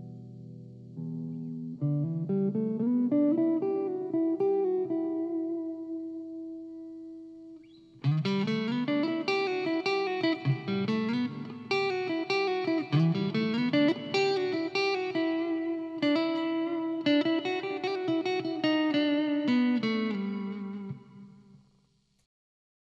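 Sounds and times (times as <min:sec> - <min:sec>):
electric guitar playing: 0:00.0 - 0:21.6.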